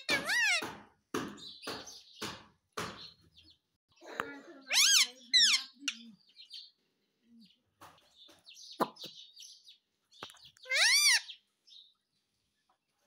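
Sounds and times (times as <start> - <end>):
parakeet chatter: 0.0 - 0.8, 4.0 - 6.8, 10.3 - 11.4.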